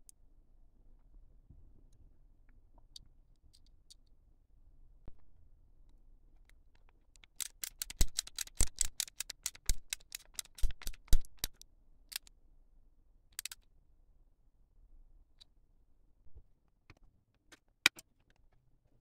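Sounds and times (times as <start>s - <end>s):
nippers snipping plastic parts: 7.2s - 12.3s.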